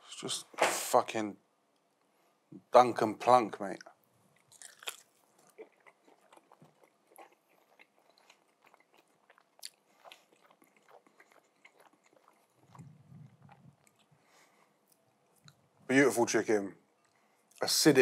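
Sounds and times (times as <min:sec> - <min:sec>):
man chewing: 0:03.8 - 0:15.7.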